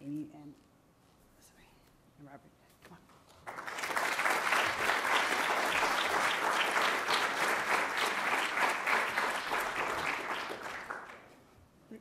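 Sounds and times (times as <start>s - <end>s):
audience applauding: 3.4s - 11.4s.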